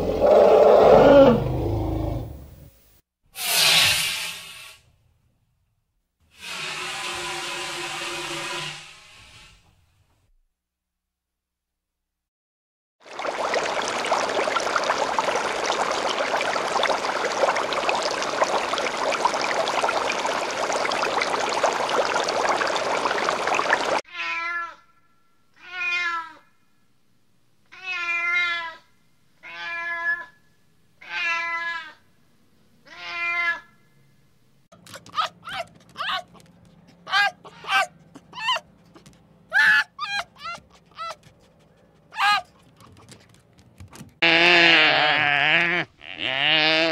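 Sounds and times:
animal wavering calls: 0.0 - 2.6.

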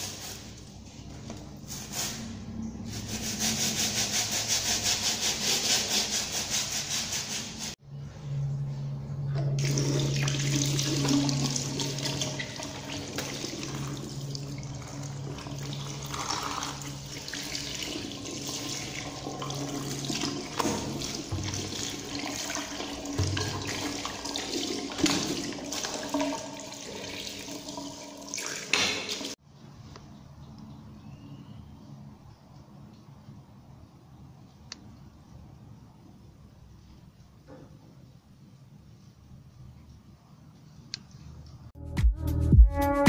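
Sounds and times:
low steady hum: 7.8 - 17.9
tap water running in a sink: 9.6 - 29.4.

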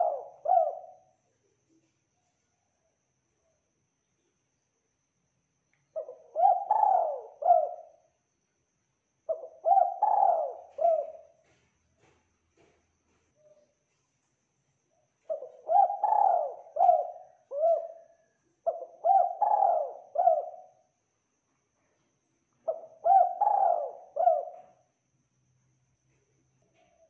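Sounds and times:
dove cooing: 0.0 - 1.1, 6.0 - 8.0, 9.3 - 11.6, 15.2 - 20.8, 22.7 - 24.8.

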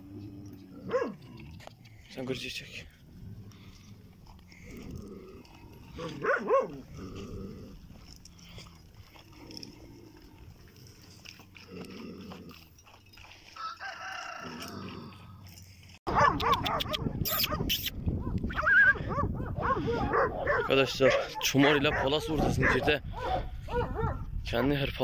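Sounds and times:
dogs: 0.0 - 1.9, 3.4 - 24.9
longer steady animal call: 3.1 - 15.6
rooster crowing: 13.5 - 15.2.

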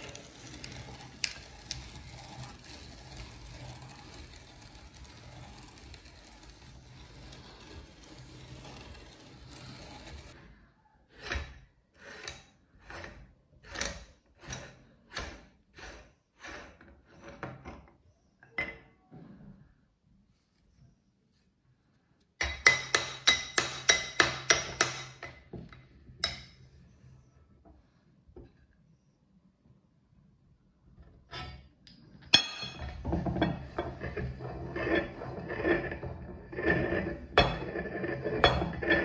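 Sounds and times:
short metal scrapes: 0.0 - 10.5, 32.7 - 39.0.

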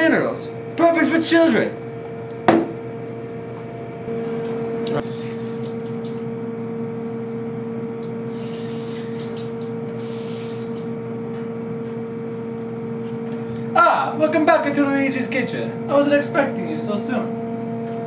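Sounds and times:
water running in sink: 4.1 - 6.3, 8.2 - 11.1
faucet spray hiss: 8.3 - 10.8.

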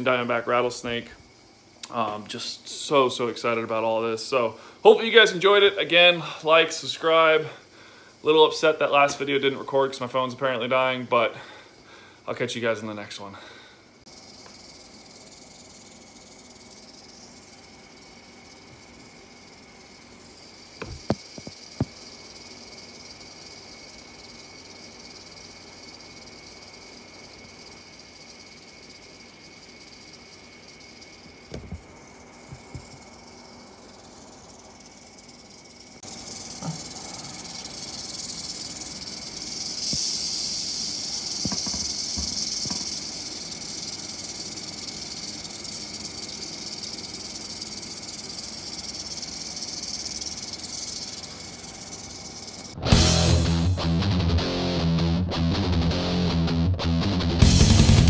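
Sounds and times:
rattlesnake rattling: 0.0 - 55.1, 57.4 - 58.0.

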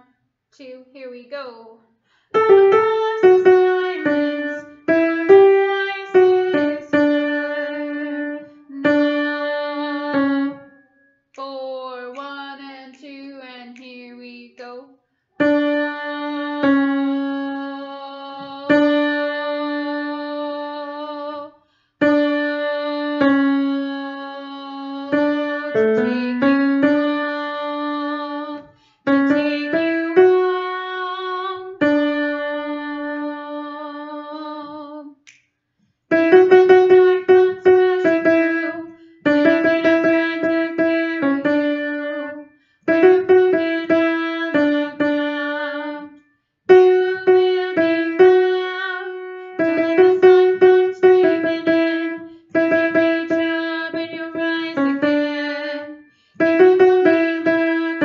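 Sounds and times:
piano single-note melody: 15.4 - 17.5, 25.1 - 28.5, 36.1 - 46.0, 46.7 - 58.0.

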